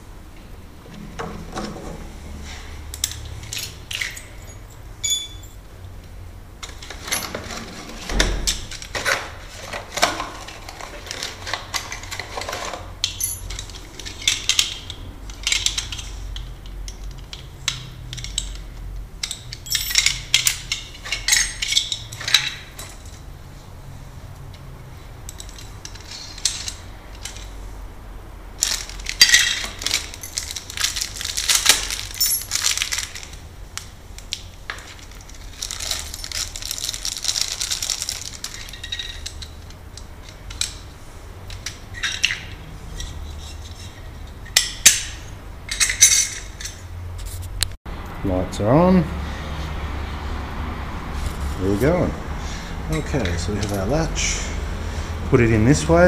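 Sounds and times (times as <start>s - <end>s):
metal lock parts clinking: 2.9s - 5.6s, 6.6s - 23.3s, 25.2s - 27.6s, 28.6s - 46.9s, 52.9s - 54.1s.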